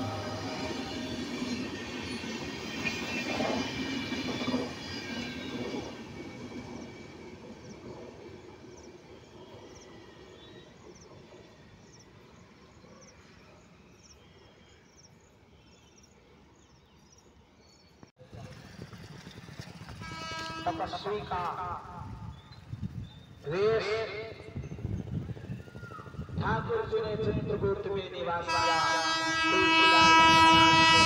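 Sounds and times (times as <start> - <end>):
train wheels rumbling and clattering: 0.0 - 8.9.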